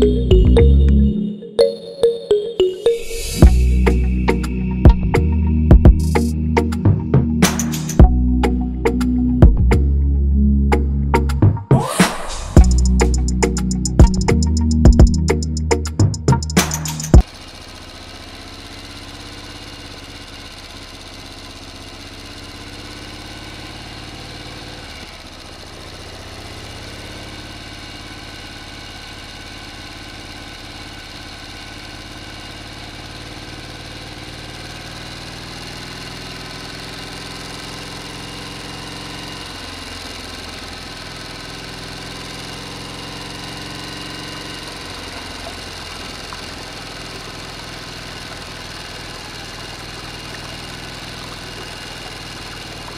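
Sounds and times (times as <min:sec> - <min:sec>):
small motor whirring hum: 0:32.0 - 0:52.9.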